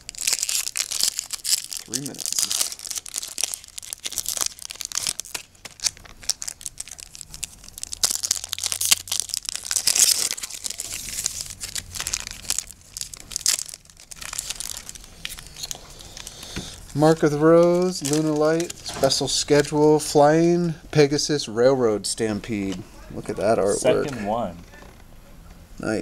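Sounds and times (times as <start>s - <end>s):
foil wrappers tearing and crinkling: 0.0s - 19.9s.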